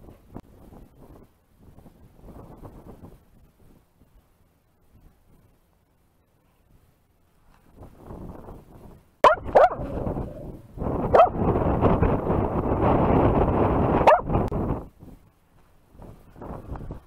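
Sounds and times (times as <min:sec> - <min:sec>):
dog barking: 0:09.2 - 0:10.0, 0:11.1 - 0:11.4, 0:14.0 - 0:14.3.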